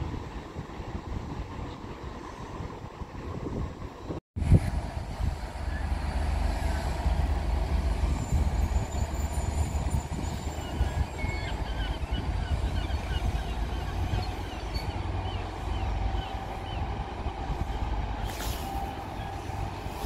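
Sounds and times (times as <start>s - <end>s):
train rumbling: 0.0s - 20.0s.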